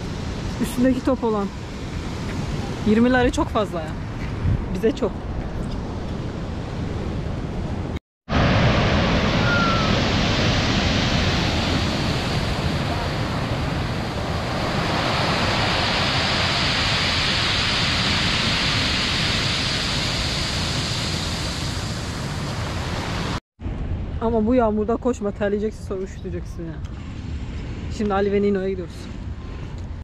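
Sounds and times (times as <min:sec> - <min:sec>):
waves breaking on pebble beach: 0:08.3 - 0:23.4.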